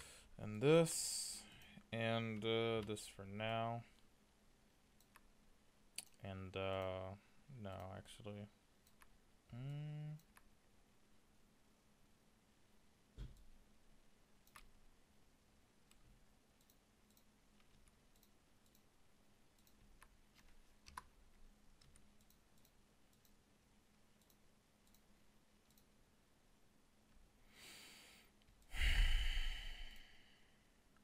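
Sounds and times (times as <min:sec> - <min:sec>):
faint steady hum: 0:00.0 - 0:31.0
computer mouse clicks: 0:05.0 - 0:05.3, 0:08.8 - 0:09.1, 0:14.4 - 0:14.8, 0:16.6 - 0:18.9, 0:19.5 - 0:23.4, 0:24.2 - 0:26.0.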